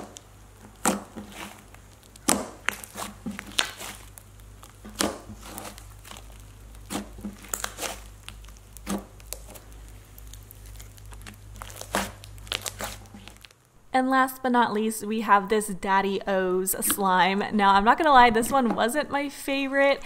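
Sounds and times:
slime popping and clicking: 0.0s - 13.5s
crinkly crackle and squishing: 0.0s - 13.8s.

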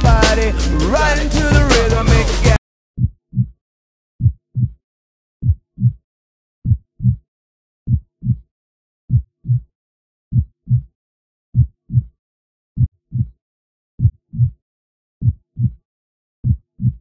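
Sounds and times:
heartbeat thumps: 4.2s - 4.8s, 5.4s - 6.0s, 6.6s - 7.2s, 7.9s - 8.4s, 9.1s - 9.6s, 10.3s - 10.9s, 11.6s - 12.1s, 12.8s - 13.4s, 14.0s - 14.6s, 15.2s - 15.8s, 16.4s - 17.0s.

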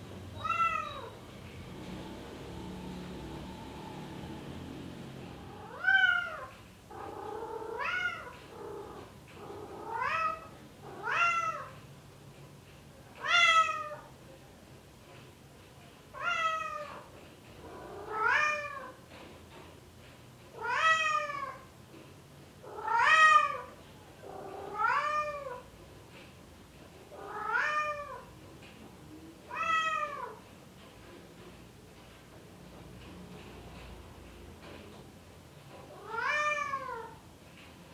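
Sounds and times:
cat meowing: 0.3s - 1.2s, 5.5s - 11.8s, 22.7s - 23.7s, 24.3s - 25.6s, 27.2s - 28.3s, 29.5s - 30.4s, 35.9s - 37.2s.

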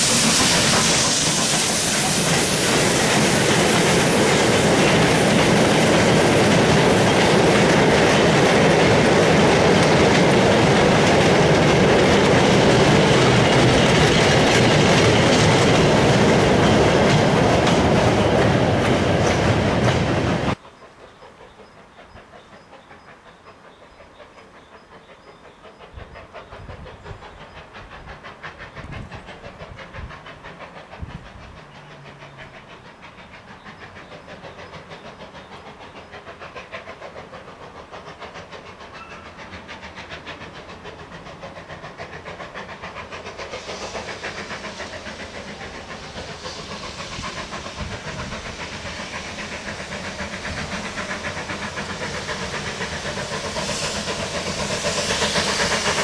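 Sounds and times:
steam hissing: 0.0s - 56.0s
steam locomotive exhaust beating: 0.0s - 56.0s.

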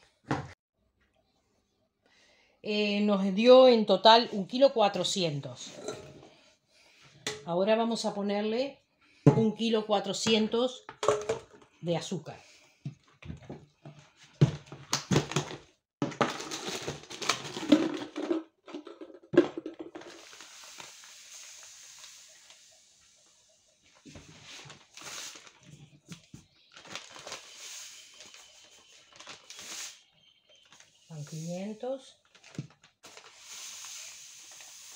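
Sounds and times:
containers knocking and clattering: 10.2s - 11.7s, 13.0s - 20.2s
plastic bag crinkling: 16.2s - 18.2s, 24.5s - 25.9s, 26.5s - 31.4s, 32.1s - 33.4s.

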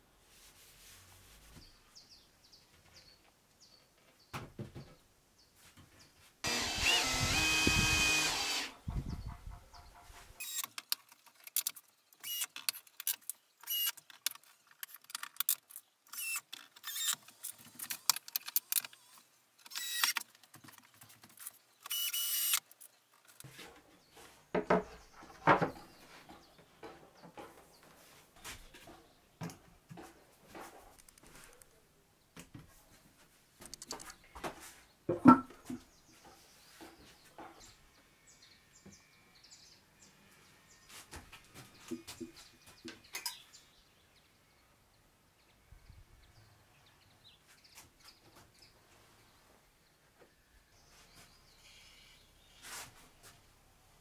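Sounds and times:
cordless drill driving screws: 6.4s - 8.8s, 10.4s - 10.8s, 12.2s - 12.7s, 13.6s - 14.0s, 16.1s - 20.2s, 21.8s - 22.6s
boards and screws clicking: 10.4s - 23.6s, 33.6s - 34.2s.

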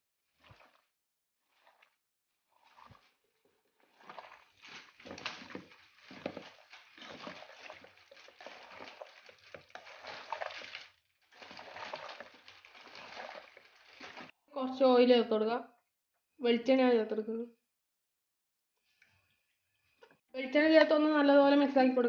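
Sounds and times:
meat squishing by hand: 0.3s - 14.4s.

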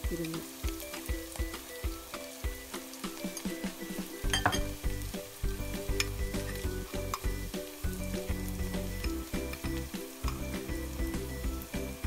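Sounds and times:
potatoes frying in oil: 0.0s - 12.0s.

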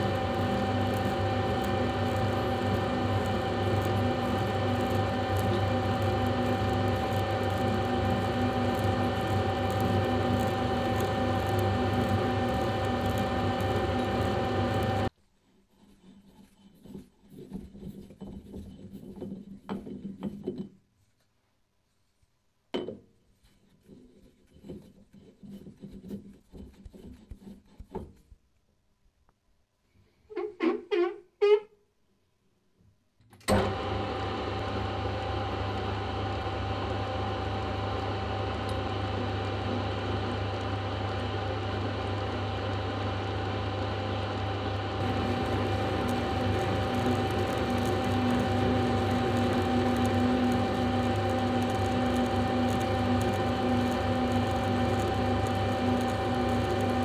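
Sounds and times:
metal lathe running: 0.0s - 15.1s, 45.0s - 57.0s
hands rubbing metal shaft: 15.4s - 20.4s.

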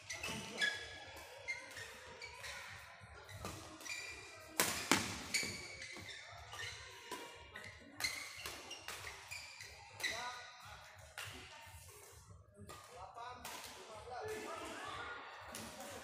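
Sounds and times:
shoe squeaks: 0.0s - 10.6s
rackets striking shuttlecock: 4.6s - 6.1s.

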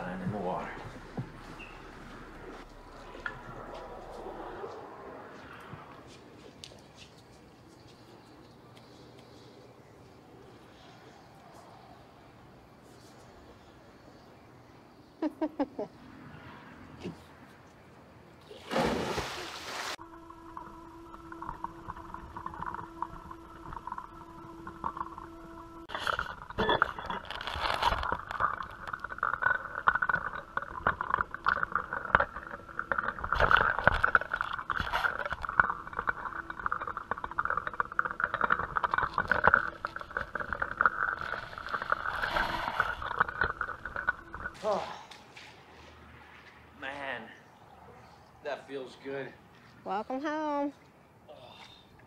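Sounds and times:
rough crackling rush of noise: 0.0s - 6.2s, 19.7s - 44.6s
steady tonal hum: 0.0s - 6.5s, 19.9s - 44.6s
person splashing into pool: 18.5s - 20.0s.

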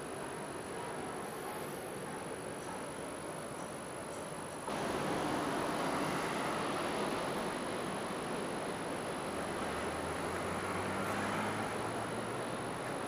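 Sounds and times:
city traffic noise: 0.0s - 13.0s
vehicle engine hum: 4.7s - 13.0s.

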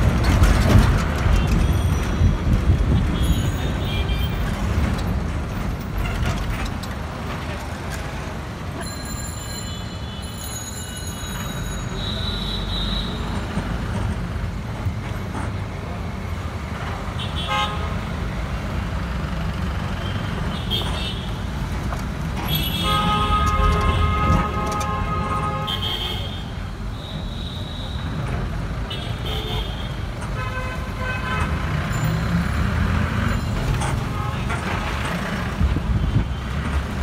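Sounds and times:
city road traffic rumble: 0.0s - 37.0s
car horns honking: 11.8s - 13.5s, 22.4s - 28.2s.

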